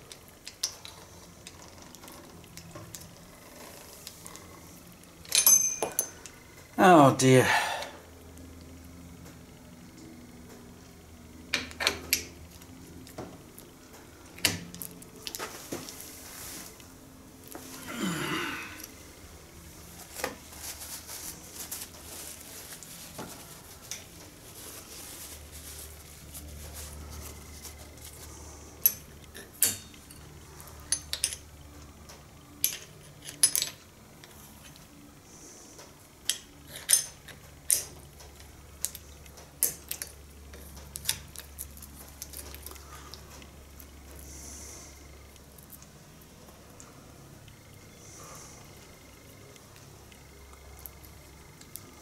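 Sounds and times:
faint low hum: 0.0 - 52.0
metal parts clinking and tapping: 5.2 - 6.2, 30.9 - 31.4, 32.6 - 33.8, 36.3 - 37.9.

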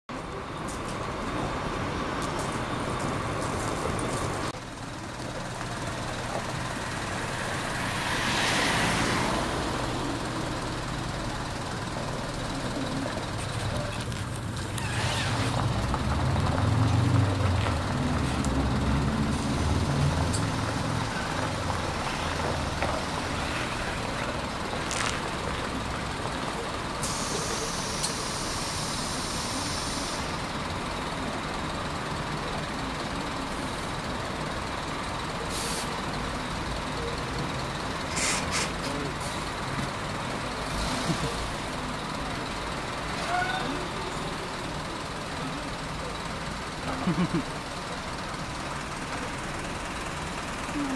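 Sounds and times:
diesel bus engine driving past: 0.1 - 50.9
air brake hiss: 27.0 - 30.3, 35.5 - 36.0, 38.1 - 38.8.

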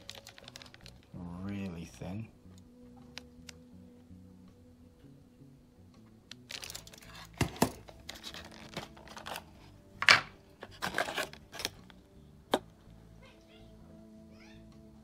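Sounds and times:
plastic packaging crinkling: 0.0 - 1.6, 6.3 - 9.5, 10.6 - 11.9
plastic snapping: 2.5 - 3.6, 10.0 - 12.7.

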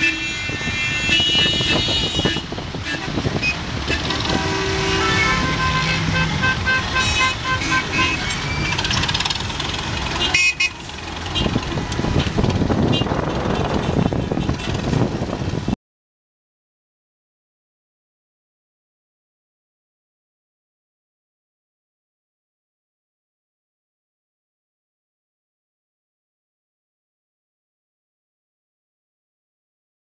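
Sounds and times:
car horns tooting: 0.0 - 15.1
vehicle engines running: 0.0 - 15.8.

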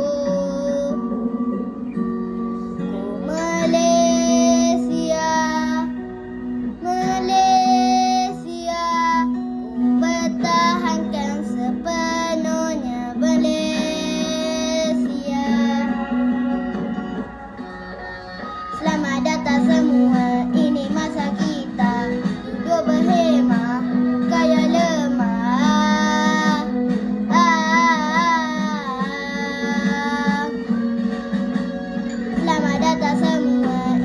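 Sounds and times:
boy singing: 0.0 - 1.3, 2.8 - 6.0, 6.8 - 9.4, 10.0 - 16.3, 18.8 - 30.7, 32.4 - 34.0
instrumental backing music: 0.0 - 34.0.

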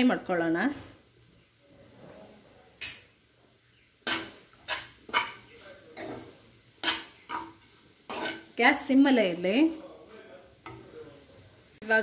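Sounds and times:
spoon scraping a frying pan: 4.0 - 8.9, 10.5 - 11.2.

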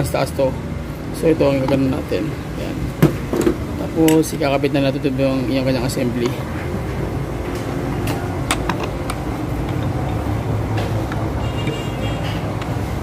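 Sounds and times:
low mechanical hum: 0.0 - 13.0
filter clicking against metal: 8.1 - 11.6.

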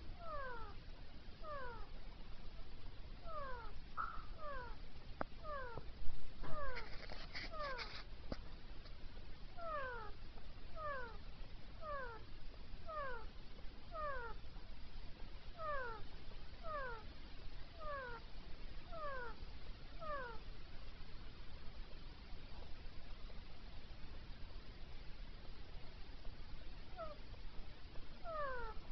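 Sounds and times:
parakeet calling: 0.1 - 0.8, 1.4 - 1.9, 3.2 - 4.8, 5.4 - 5.8, 6.4 - 8.0, 9.6 - 11.2, 11.8 - 12.2, 12.8 - 13.3, 13.9 - 14.4, 15.6 - 16.0, 16.6 - 17.0, 17.8 - 18.2, 18.9 - 19.4, 20.0 - 20.4, 26.9 - 27.2, 28.2 - 28.8.

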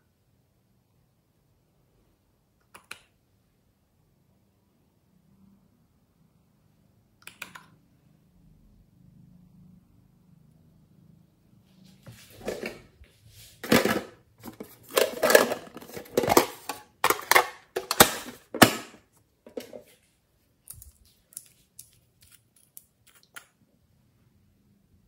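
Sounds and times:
hands rummaging through small items: 13.6 - 18.9.

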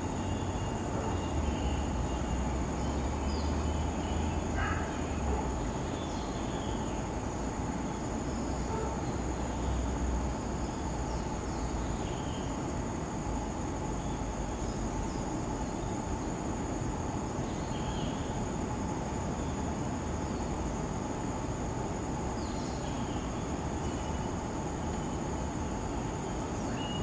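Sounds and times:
insects trilling: 0.0 - 27.0
faint bird chirps: 0.1 - 7.0, 10.6 - 12.6, 22.4 - 27.0.

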